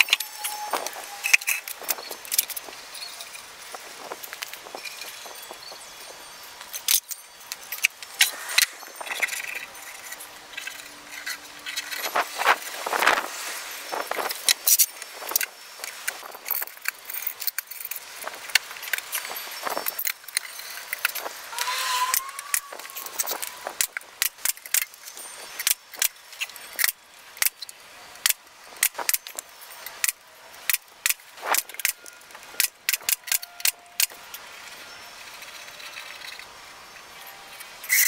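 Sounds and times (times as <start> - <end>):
short squeak: 0.0 - 2.2, 21.2 - 23.9.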